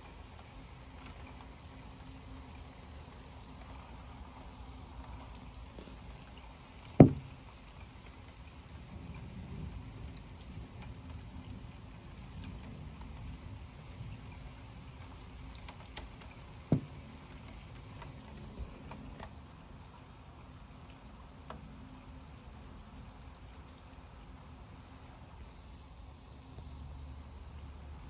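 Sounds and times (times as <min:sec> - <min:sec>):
raindrops ticking on glass: 0:00.0 - 0:28.0
steady rain: 0:00.0 - 0:28.0
sharp knocks: 0:07.0 - 0:07.4, 0:16.7 - 0:17.0.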